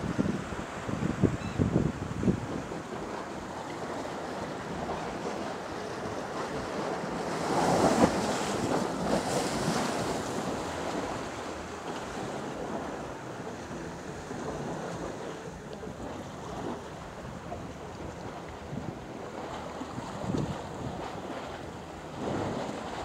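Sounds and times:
surf washing against rocks: 0:00.0 - 0:23.0
wind buffeting microphone: 0:00.0 - 0:23.0.

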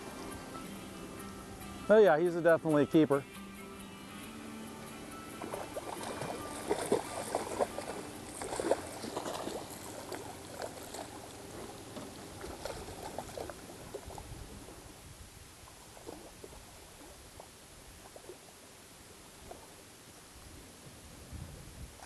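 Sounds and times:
fish splashing in water: 0:05.4 - 0:14.3.

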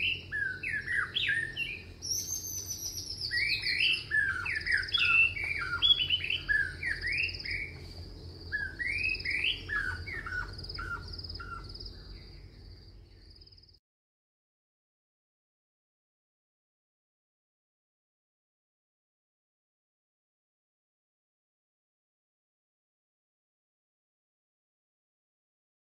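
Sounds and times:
birds chirping: 0:00.0 - 0:13.8
steady high bird trill: 0:00.0 - 0:13.8.

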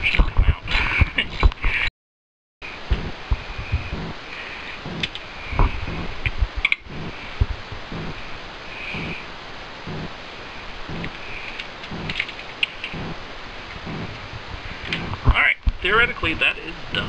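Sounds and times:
faint steady hiss: 0:02.6 - 0:17.0
sharp clicks: 0:04.9 - 0:06.9, 0:10.9 - 0:13.2.

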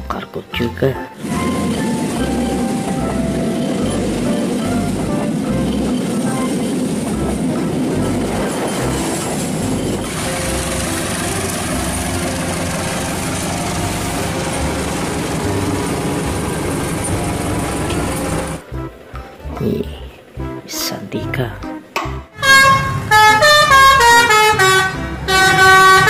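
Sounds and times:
diesel locomotive engines running: 0:00.0 - 0:26.0
train wheels on rails: 0:01.2 - 0:18.6.

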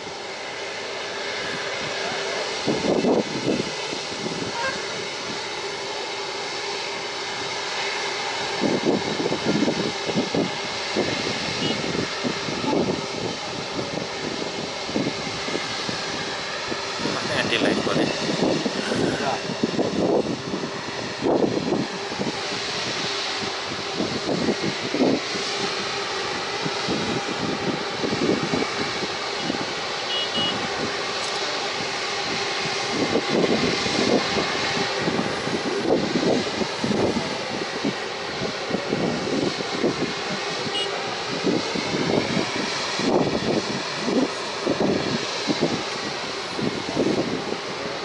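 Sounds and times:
jet engines running at low power: 0:00.0 - 0:48.0.

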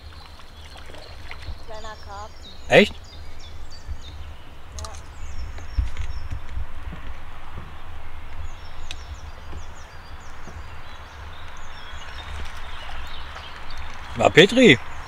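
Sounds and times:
small bird chirping: 0:00.0 - 0:06.6
steady outdoor hiss: 0:00.0 - 0:15.0
wind rumbling on microphone: 0:00.0 - 0:15.0.

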